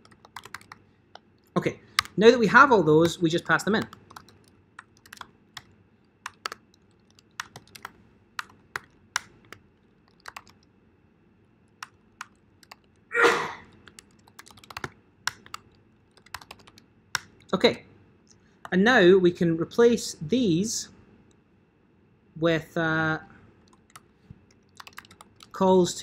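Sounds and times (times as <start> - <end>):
computer keyboard typing: 0.0 - 10.7, 11.7 - 13.1, 13.7 - 17.6, 23.6 - 25.6.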